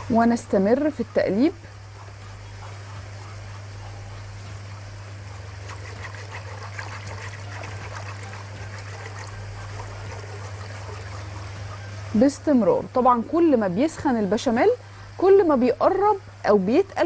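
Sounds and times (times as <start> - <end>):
steady low hum: 0.0 - 17.0
whisk sloshing sauce: 5.6 - 11.6.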